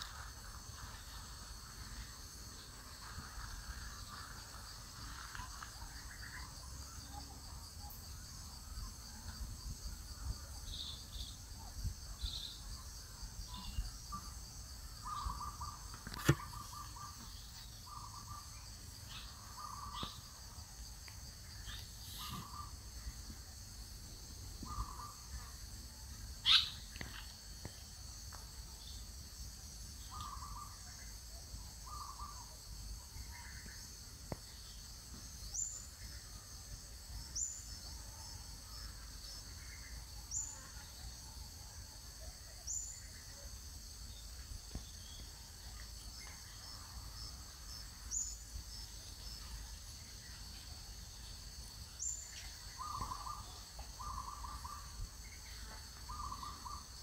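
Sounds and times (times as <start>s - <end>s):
loud sharp chirp: 26.4s - 26.9s.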